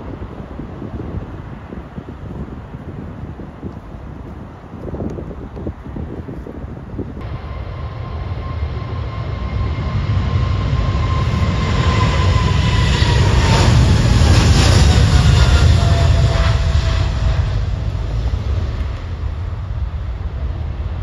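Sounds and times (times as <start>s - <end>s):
jet engine whine: 7.2s - 21.0s
jet engines roaring: 7.2s - 21.0s.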